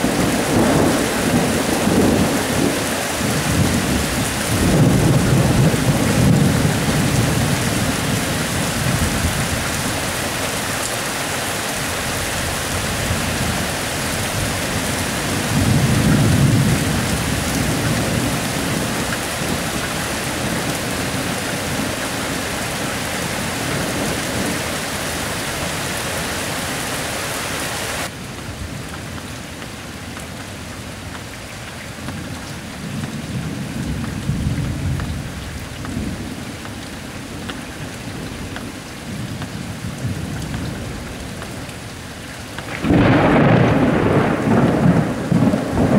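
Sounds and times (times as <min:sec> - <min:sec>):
thunder rumbling: 0:00.0 - 0:10.6, 0:11.8 - 0:26.2, 0:42.6 - 0:45.9
steady rain falling: 0:00.0 - 0:45.9.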